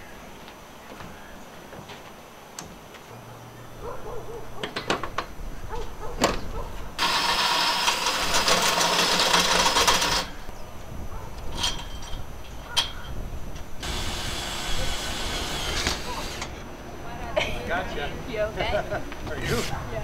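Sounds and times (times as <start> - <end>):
cordless drill driving fastener: 13.8 - 16.5.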